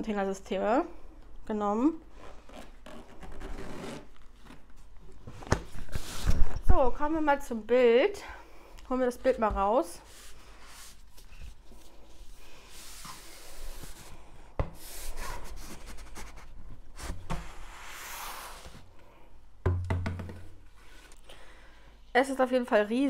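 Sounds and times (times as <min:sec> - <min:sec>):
tube knocking on wooden table: 0:19.6 - 0:20.5.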